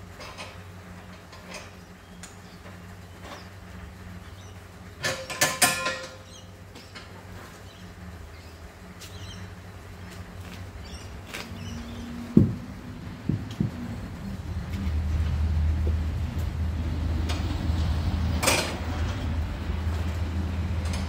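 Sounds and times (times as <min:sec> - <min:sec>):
gas cylinder clanking and rattling: 0:00.0 - 0:04.0, 0:04.9 - 0:07.5, 0:17.2 - 0:21.0
steady low hum: 0:00.0 - 0:21.0.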